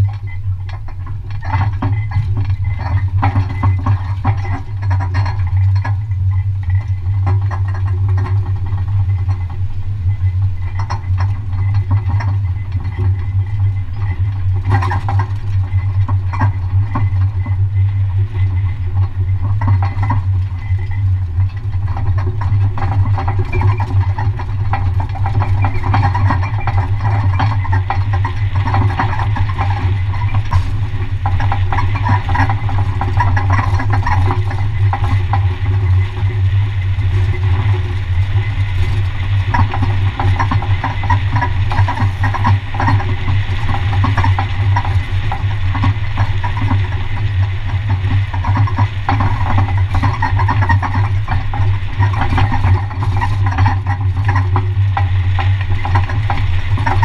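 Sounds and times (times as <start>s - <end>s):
truck engine drone: 28.1s - 39.2s.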